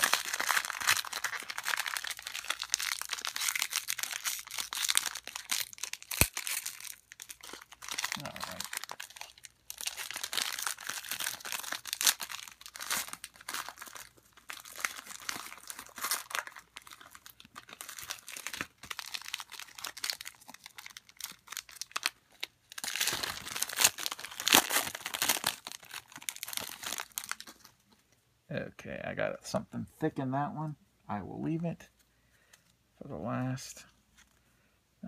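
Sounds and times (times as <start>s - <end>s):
foil wrappers crinkling and tearing: 0.0s - 27.8s.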